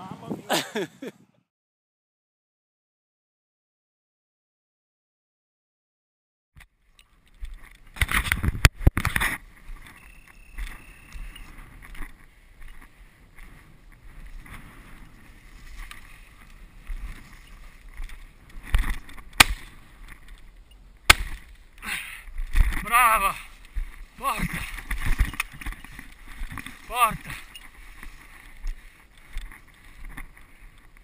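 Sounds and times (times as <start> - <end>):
brush rustling against camera: 7.1 - 20.7, 21.3 - 31.0.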